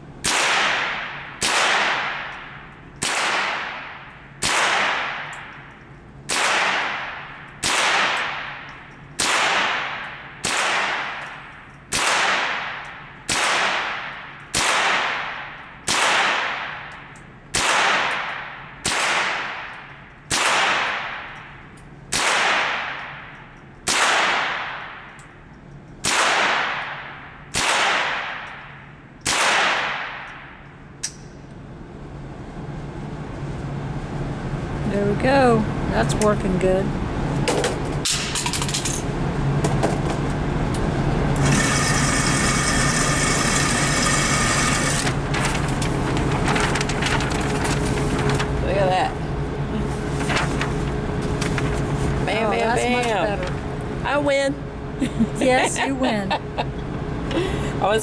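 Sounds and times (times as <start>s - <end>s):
rifle shots in indoor range: 0.0s - 32.9s, 38.0s - 39.6s.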